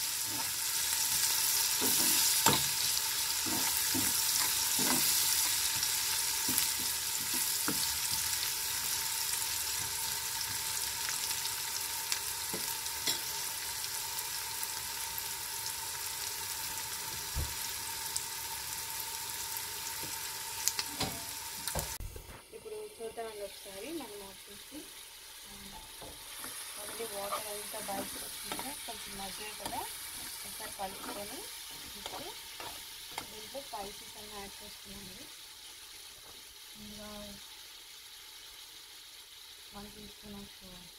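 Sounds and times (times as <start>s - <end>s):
vegetables sizzling in oil: 0.0s - 40.9s
spatula scraping a pan: 0.2s - 8.3s, 25.7s - 33.4s.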